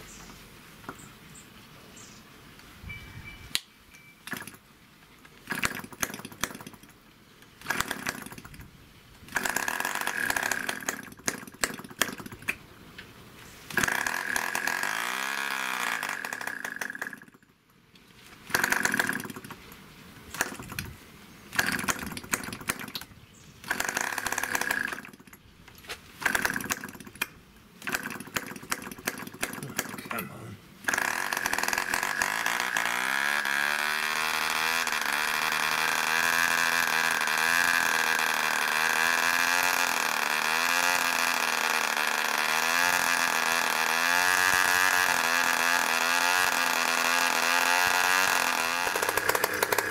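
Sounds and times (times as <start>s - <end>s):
model aircraft engine starting: 4.3s - 4.6s, 5.4s - 7.0s, 7.6s - 8.7s, 9.3s - 12.6s, 13.7s - 17.5s, 18.4s - 19.7s, 20.3s - 25.4s, 26.2s - 30.2s, 30.8s - 49.9s.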